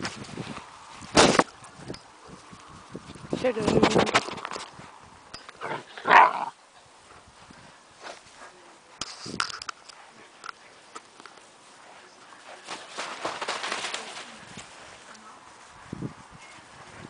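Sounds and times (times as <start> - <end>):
rustling: 0.0 - 17.0
puppies scampering on grass: 7.0 - 17.0.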